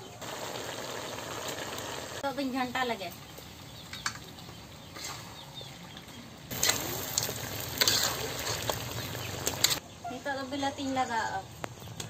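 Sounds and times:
chicken sizzling in a pan: 0.0 - 5.4, 6.5 - 9.8
metal spatula scraping pan: 7.7 - 9.8.

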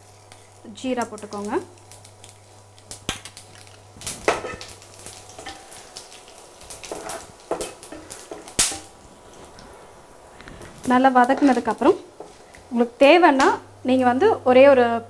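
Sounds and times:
spices sizzling in oil: 0.0 - 15.0
wooden spatula scraping pan: 6.8 - 8.5.

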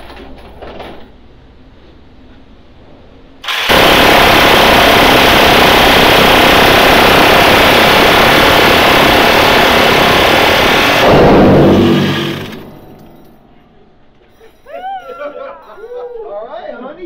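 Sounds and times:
minigun firing: 3.4 - 13.0.

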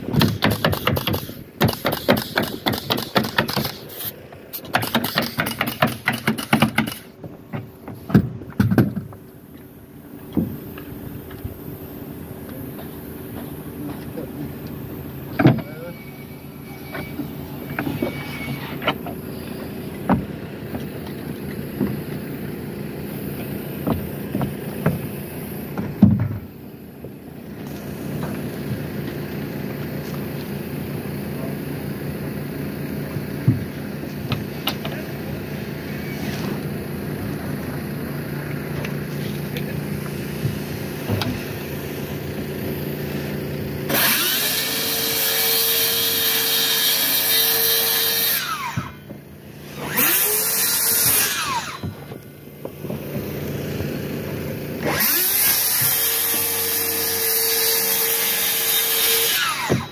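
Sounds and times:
circular saw cutting wood: 15.6 - 19.8, 43.2 - 52.2, 53.3 - 59.9.

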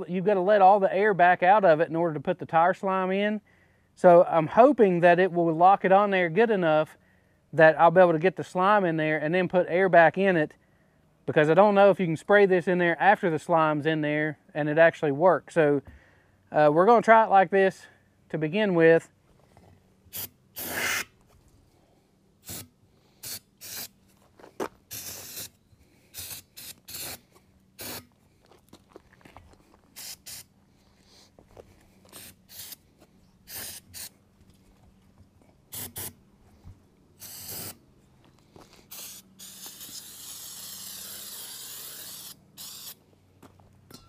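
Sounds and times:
aerosol spray can hissing: 20.1 - 21.0, 23.2 - 23.9, 24.9 - 25.5, 26.1 - 27.2, 27.8 - 28.0, 30.0 - 30.5, 32.1 - 32.8, 33.5 - 34.1, 35.7 - 36.1, 37.2 - 37.8, 38.9 - 43.0
air inflator hissing: 20.1 - 21.1, 22.4 - 23.9, 24.9 - 27.2, 27.8 - 28.1, 30.0 - 30.4, 32.1 - 32.8, 33.5 - 34.1, 35.7 - 36.1, 37.2 - 37.8, 38.8 - 43.0.

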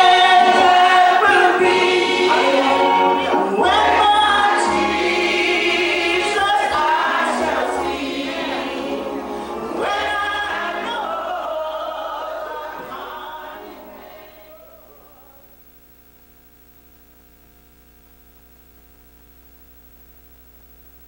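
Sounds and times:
choir singing: 0.0 - 15.4
faint electrical hum: 2.8 - 21.0.

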